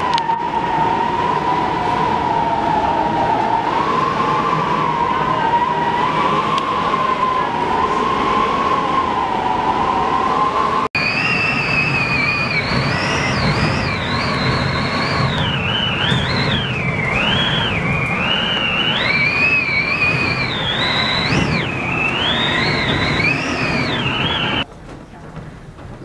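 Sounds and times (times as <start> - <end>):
rushing wind: 0.0 - 24.9
wind whistling: 0.0 - 26.0.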